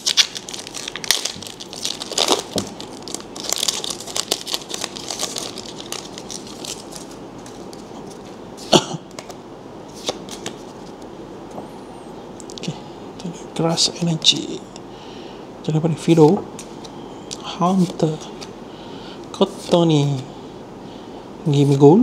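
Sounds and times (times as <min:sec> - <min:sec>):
foil wrapper tearing and crinkling: 0:00.0 - 0:07.7
cards being handled: 0:09.1 - 0:11.0.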